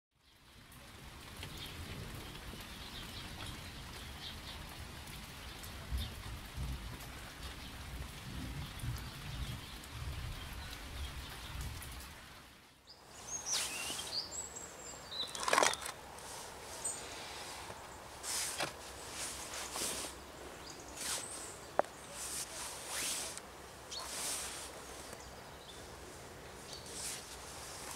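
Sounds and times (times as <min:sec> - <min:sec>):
rain hissing: 0:00.2 - 0:27.9
faint bird chirps: 0:12.7 - 0:15.9
sharp rustle: 0:13.1 - 0:27.9
bird whistling: 0:13.3 - 0:14.4.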